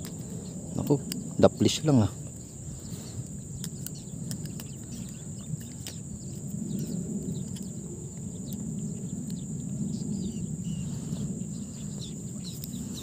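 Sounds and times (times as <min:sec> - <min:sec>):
bird chirps: 0:00.0 - 0:13.0
insects droning: 0:00.0 - 0:13.0
low rumbling noise: 0:00.0 - 0:13.0.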